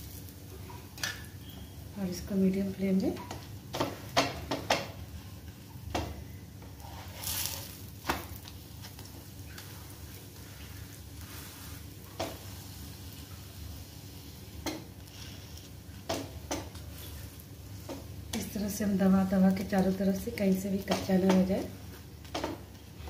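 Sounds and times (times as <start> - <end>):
flatbread sizzling on griddle: 0.0 - 1.8, 6.6 - 21.0.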